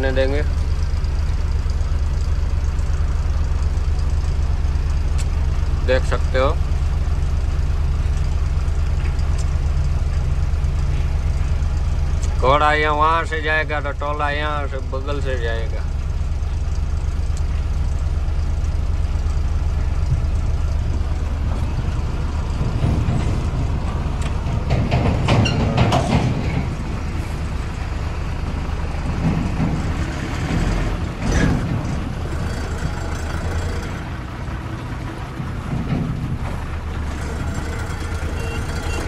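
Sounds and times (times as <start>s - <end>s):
truck diesel engine running: 0.0s - 39.0s
loud noisy bursts: 32.1s - 34.1s.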